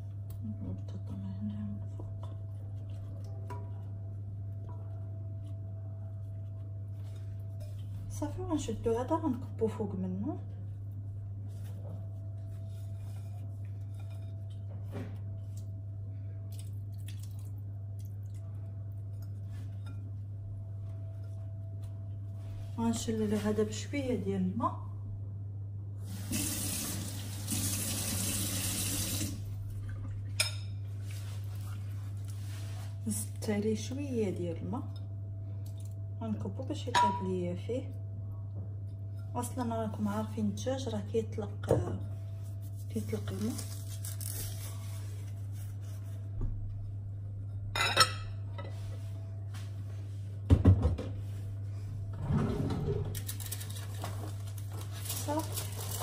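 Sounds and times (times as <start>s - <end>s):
steady low hum: 0.0s - 26.1s, 29.2s - 54.9s
tap water running into bowl: 26.2s - 29.4s.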